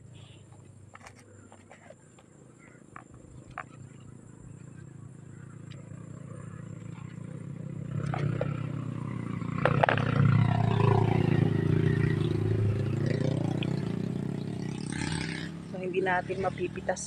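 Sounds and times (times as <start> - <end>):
passing vehicle engine: 3.3 - 17.0.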